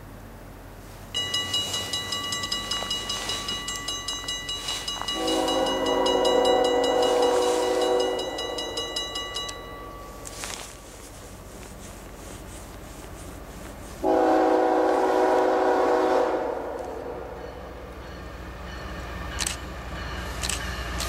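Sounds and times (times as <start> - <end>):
distant train rumble: 0.0 - 21.0
locomotive air horn blast: 5.1 - 8.4, 14.0 - 17.4.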